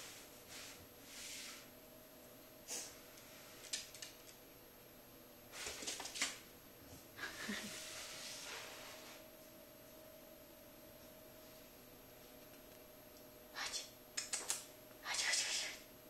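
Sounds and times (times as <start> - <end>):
dog claws clicking on wooden floor: 3.6 - 4.4, 14.2 - 14.7.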